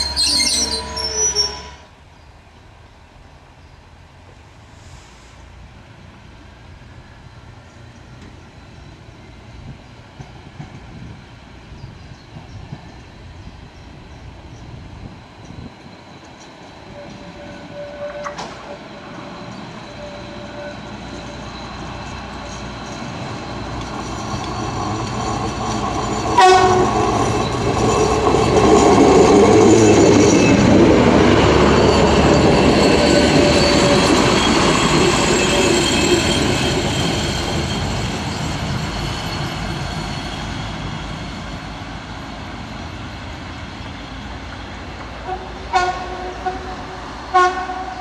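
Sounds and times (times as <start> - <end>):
train horn toot: 0.0 - 1.9, 16.9 - 19.1, 19.9 - 21.4, 26.4 - 27.2, 45.2 - 48.0
diesel railcar engine and wheels: 0.0 - 48.0.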